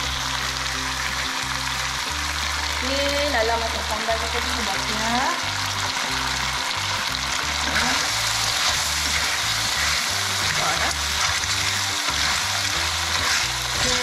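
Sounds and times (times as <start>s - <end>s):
clams sizzling in a pan: 0.0s - 14.0s.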